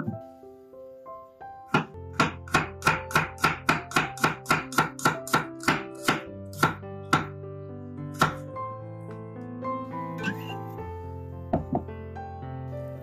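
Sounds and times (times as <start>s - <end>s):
background music: 0.0s - 13.0s
knife chopping on wooden board: 1.7s - 7.3s.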